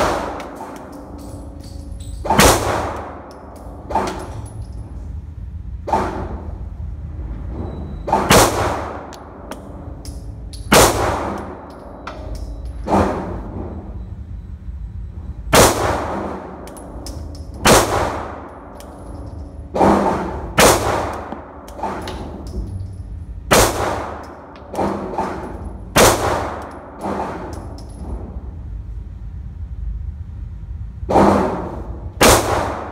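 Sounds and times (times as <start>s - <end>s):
pistol shots: 0.0s - 1.2s, 2.3s - 3.3s, 8.2s - 9.1s, 10.7s - 11.7s, 15.5s - 16.6s, 17.6s - 18.5s, 19.8s - 22.0s, 23.5s - 27.5s, 32.2s - 32.9s.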